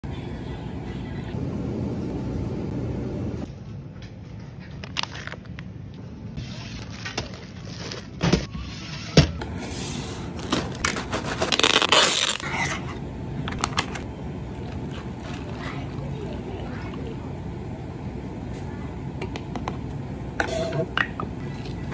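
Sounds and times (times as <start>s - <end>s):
plastic crinkling: 6.4s - 8.4s, 10.4s - 12.5s.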